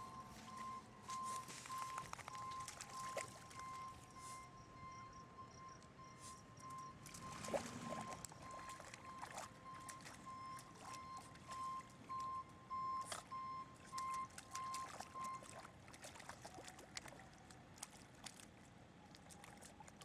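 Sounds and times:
reversing alarm beeping: 0:00.0 - 0:15.6
dog splashing in mud: 0:00.6 - 0:04.0, 0:07.0 - 0:12.2, 0:12.9 - 0:20.0.

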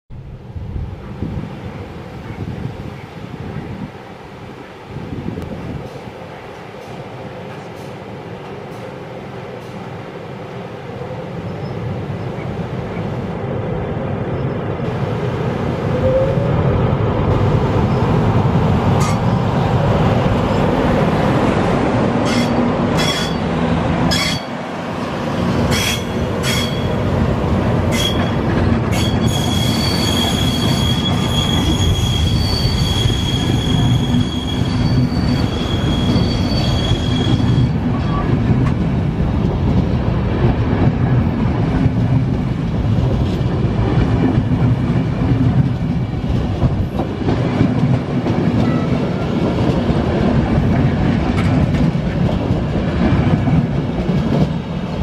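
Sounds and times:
electric locomotive passing: 0:00.2 - 0:55.0
passenger coaches rolling by: 0:00.2 - 0:55.0
high-pitched wheel squeal: 0:28.9 - 0:38.3.

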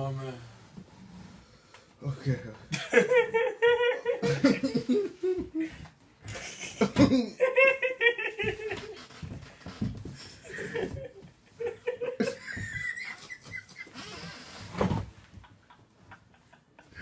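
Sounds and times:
people laughing hard: 0:02.7 - 0:09.3, 0:10.4 - 0:14.2, 0:15.3 - 0:17.0
wheezing and chuckling: 0:03.5 - 0:17.0.

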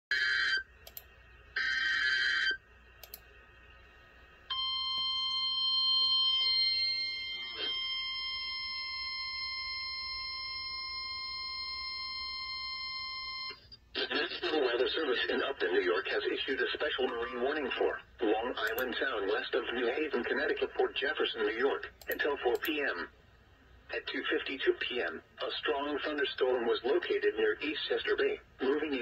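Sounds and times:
steady alarm tone: 0:04.5 - 0:13.6.

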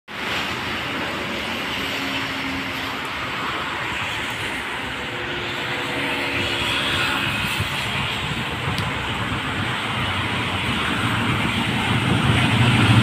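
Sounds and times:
faint locomotive engine drone: 0:00.1 - 0:13.0.

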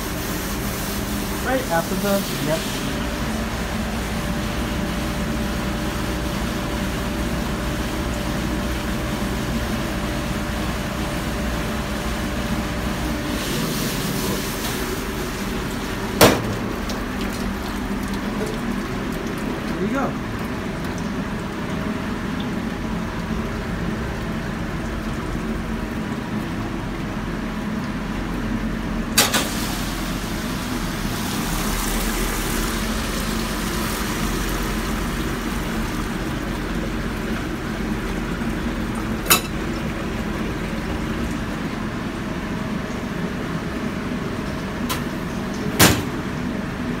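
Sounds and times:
water jets spraying: 0:00.0 - 0:26.6, 0:29.2 - 0:46.8
dishwasher pump humming: 0:00.0 - 0:47.0
sharp knocks: 0:45.8 - 0:46.2.

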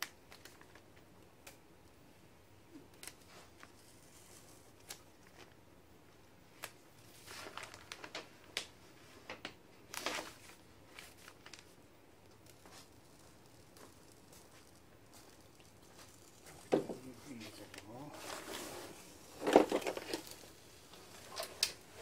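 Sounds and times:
stencil paper crinkling and tearing: 0:02.9 - 0:05.6, 0:06.6 - 0:08.7, 0:09.9 - 0:22.0.

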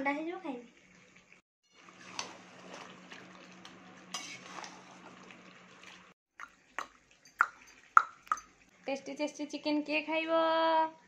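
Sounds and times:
metal spatula scraping a pan: 0:04.1 - 0:05.0.

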